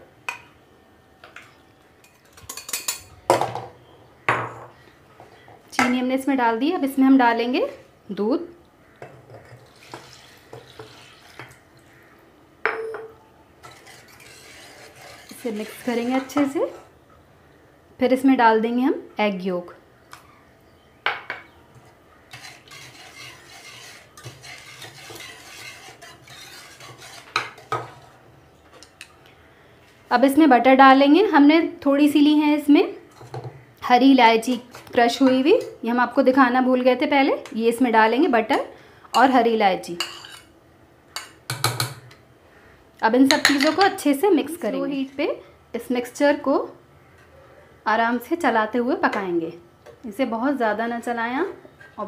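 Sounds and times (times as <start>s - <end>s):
whisk beating in metal saucepan: 13.6s - 16.5s, 22.3s - 28.2s.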